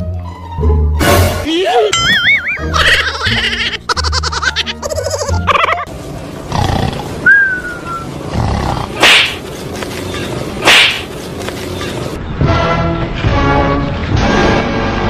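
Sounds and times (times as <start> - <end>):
lion roaring: 8.3 - 9.0.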